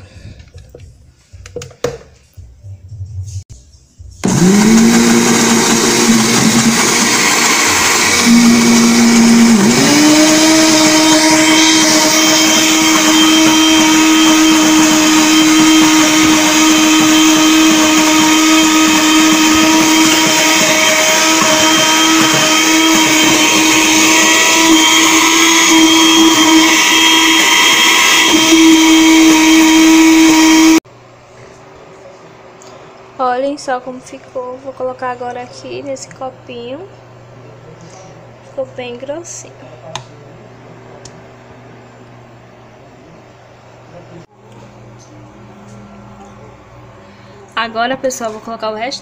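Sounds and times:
electric blender running: 4.2 - 30.8.

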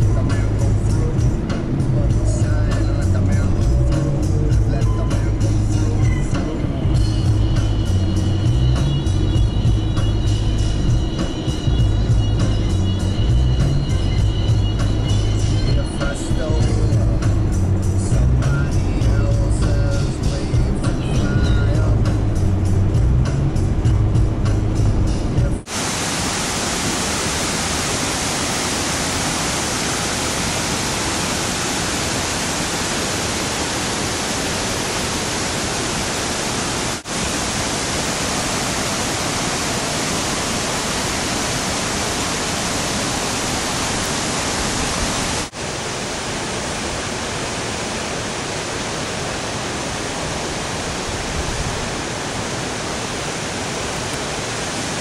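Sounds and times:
river rapids roaring: 24.7 - 55.0
small waterfalls pouring over rock: 25.7 - 55.0.

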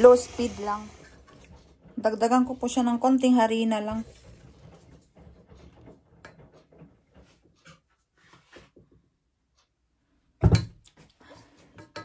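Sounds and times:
spatula scraping dough in metal bowl: 0.0 - 8.6.

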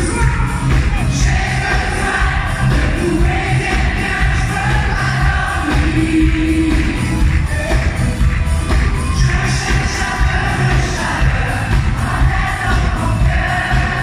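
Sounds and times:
drum beat: 0.0 - 14.0
lead singing: 0.0 - 14.0.

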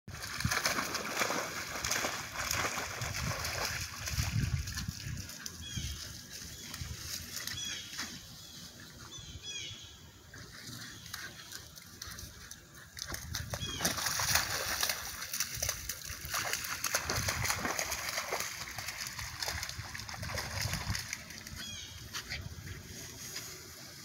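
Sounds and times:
puppy splashing in mud and water: 0.1 - 8.8, 10.2 - 24.0.

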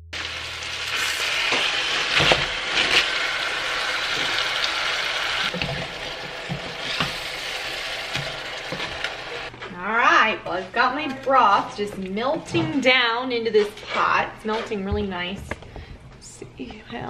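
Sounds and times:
broth hissing and sizzling: 0.2 - 9.5.

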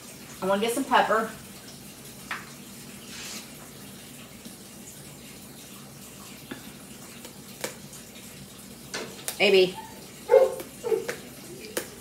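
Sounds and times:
kitchen hum: 0.0 - 12.0.

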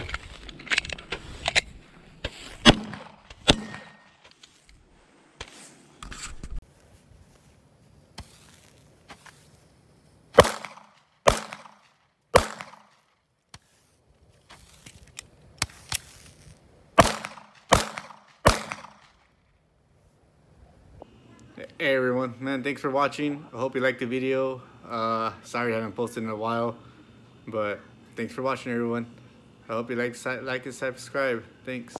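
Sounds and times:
pistol shots: 2.6 - 4.1, 10.4 - 13.0, 17.0 - 19.2.

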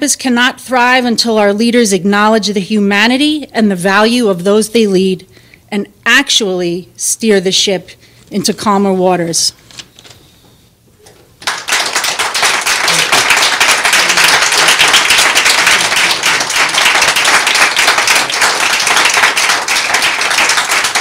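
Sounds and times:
people applauding: 11.4 - 21.0.

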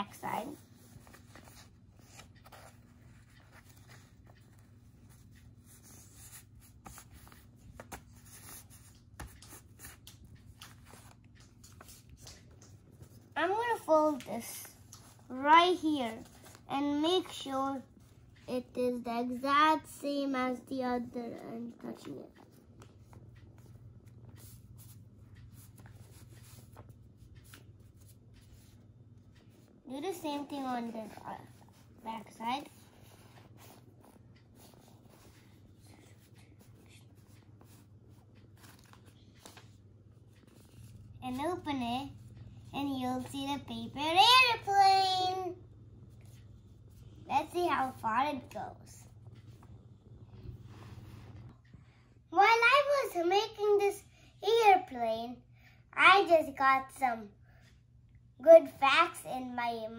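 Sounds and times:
paper rustling and folding: 0.0 - 17.5, 32.6 - 41.0
low steady hum: 0.0 - 59.9.

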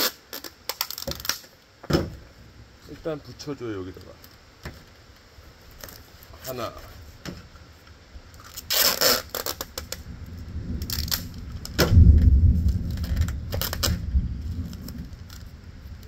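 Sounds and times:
tape ripped off roll: 0.0 - 2.2, 8.4 - 10.1, 10.8 - 15.5.

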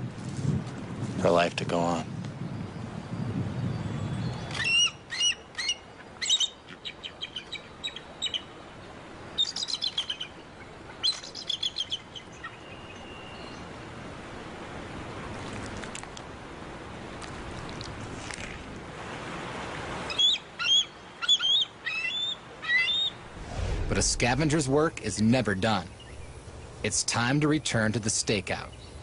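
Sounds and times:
soft steady hiss: 4.3 - 29.0
eagle chittering calls: 4.6 - 8.5, 11.0 - 12.7, 20.1 - 23.2.

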